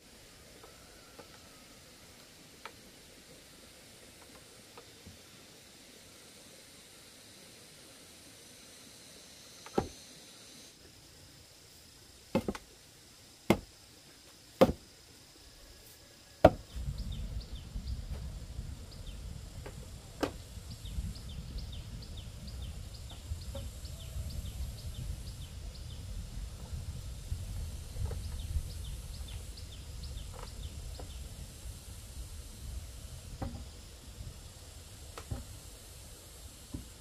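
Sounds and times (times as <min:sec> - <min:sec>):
wood knocks: 0:12.3 - 0:12.6, 0:14.6 - 0:14.8, 0:16.4 - 0:16.7
steady low rumble: 0:16.6 - 0:36.6.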